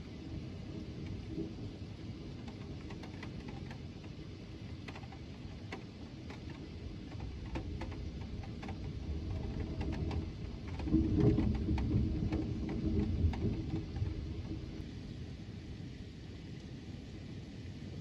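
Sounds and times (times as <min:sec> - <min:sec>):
thunder rumbling: 0:00.0 - 0:04.7, 0:05.4 - 0:15.7
raindrop ticks: 0:00.9 - 0:01.5, 0:02.2 - 0:14.8.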